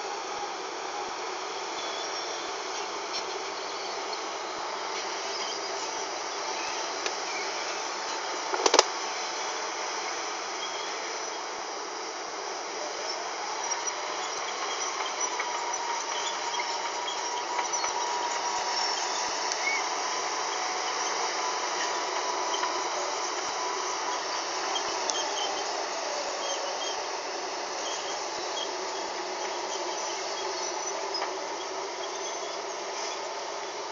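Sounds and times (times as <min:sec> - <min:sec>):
heavy machinery running with hiss: 0:00.0 - 0:33.9
sharp click: 0:08.5 - 0:08.9.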